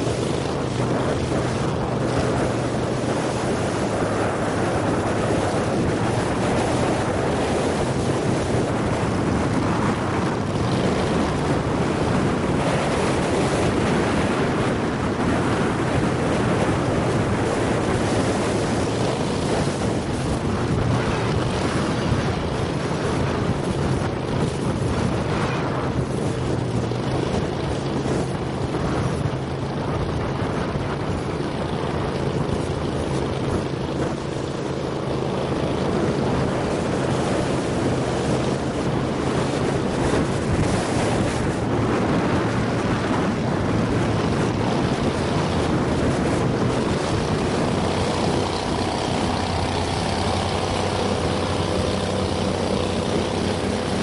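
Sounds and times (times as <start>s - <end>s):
boat motor droning: 0.0s - 54.0s
water rushing past hull: 0.0s - 54.0s
wind buffeting microphone: 0.0s - 54.0s.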